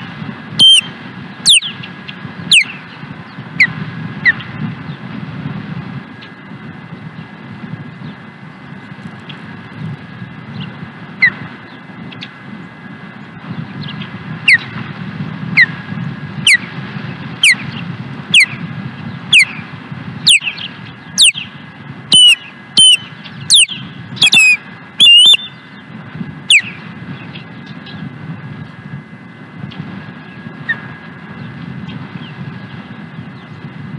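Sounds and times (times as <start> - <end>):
osprey calling: 0.6 - 3.0, 13.9 - 14.8, 16.4 - 16.7, 17.4 - 18.6, 19.3 - 25.9, 26.5 - 28.0.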